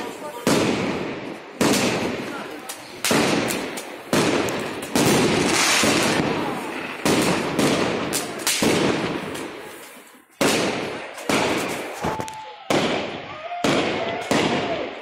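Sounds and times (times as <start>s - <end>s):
fireworks bangs: 0.0s - 15.0s
fireworks crackling: 0.0s - 15.0s.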